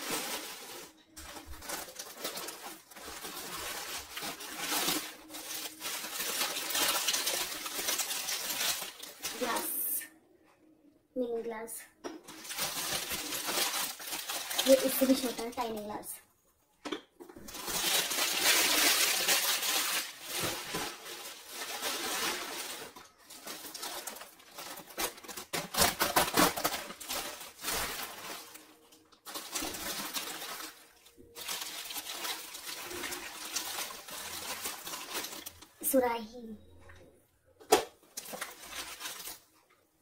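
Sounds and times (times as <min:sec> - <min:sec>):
packaging rustling and crinkling: 0:00.0 - 0:09.8, 0:12.2 - 0:15.9, 0:17.4 - 0:35.8, 0:37.7 - 0:39.8.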